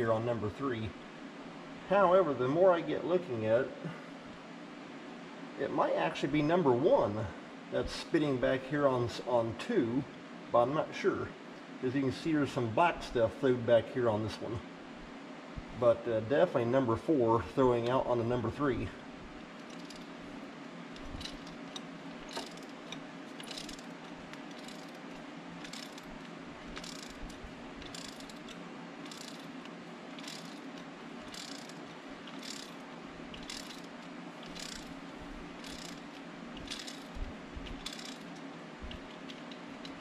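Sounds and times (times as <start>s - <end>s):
steady low hum: 0.0s - 40.0s
ratchet wrench clicking: 19.6s - 20.2s, 21.0s - 40.0s.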